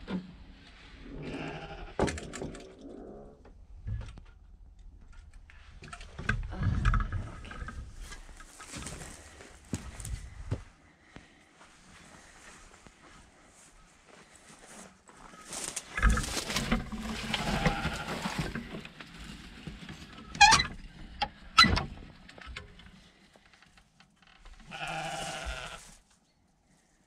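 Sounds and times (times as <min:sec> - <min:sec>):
wooden boards scraping and knocking: 0:15.9 - 0:22.2.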